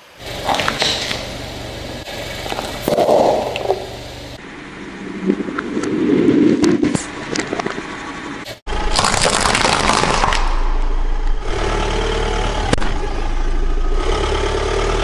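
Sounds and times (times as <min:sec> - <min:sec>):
low engine hum: 0:00.2 - 0:08.9, 0:10.5 - 0:15.0
plastic toys crunching under tyre: 0:08.8 - 0:10.6.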